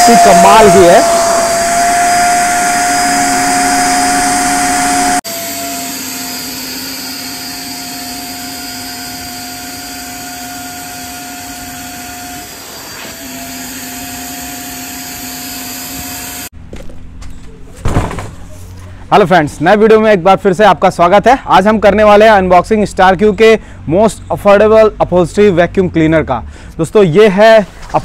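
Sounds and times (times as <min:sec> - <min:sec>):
vacuum cleaner motor whine: 0:00.0 - 0:16.5.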